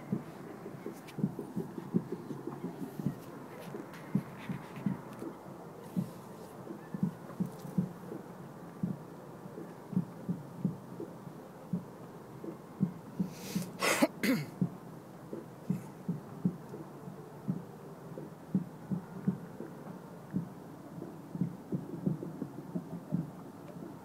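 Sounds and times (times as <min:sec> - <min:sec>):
burst of hiss: 0:13.3 - 0:14.1.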